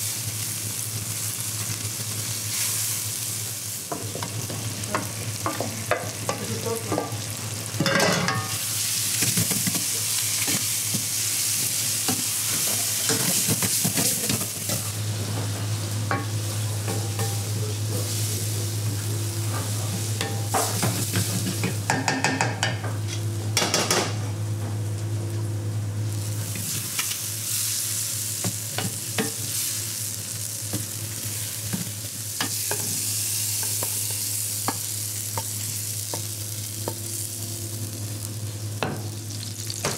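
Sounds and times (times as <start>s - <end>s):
beans sizzling in a frying pan: 0.0s - 23.2s, 26.0s - 39.9s
steady low hum: 28.2s - 39.9s.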